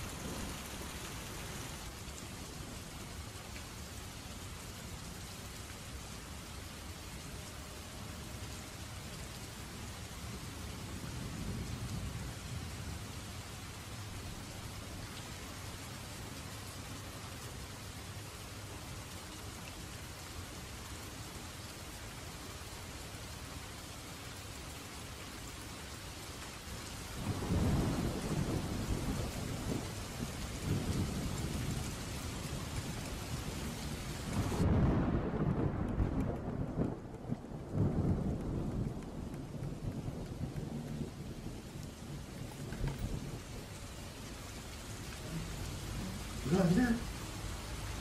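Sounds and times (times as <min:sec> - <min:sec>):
steady rain: 0:00.0 - 0:48.0
rolling thunder: 0:27.2 - 0:33.0, 0:33.6 - 0:43.7.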